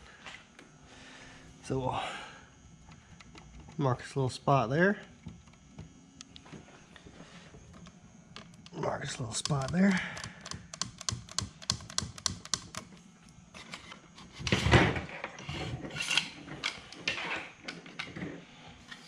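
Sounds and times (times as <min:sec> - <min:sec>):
plastic parts clicking and tapping: 0:07.7 - 0:13.0.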